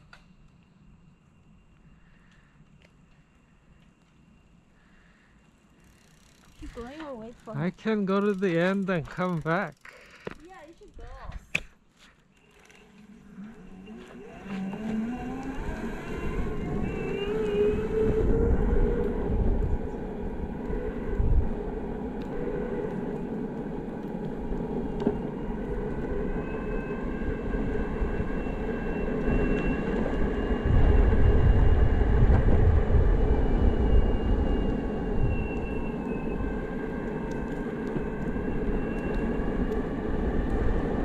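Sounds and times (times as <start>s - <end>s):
rumble of wheels: 0.0s - 41.0s
wind: 0.0s - 41.0s
electric skateboard motor whine: 5.7s - 10.4s, 12.3s - 41.0s.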